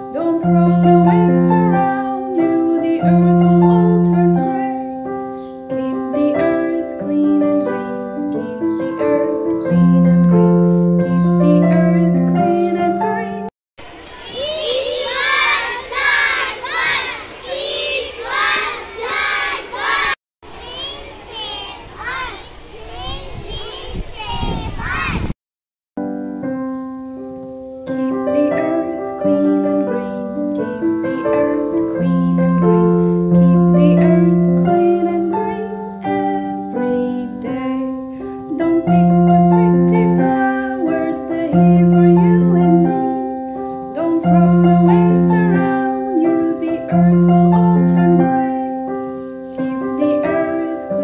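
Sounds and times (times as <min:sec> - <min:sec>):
keyboard playing slow melody: 0:00.0 - 0:13.5, 0:26.0 - 0:51.0
quieter children's voices: 0:13.8 - 0:25.3
children shouting together: 0:13.9 - 0:25.3.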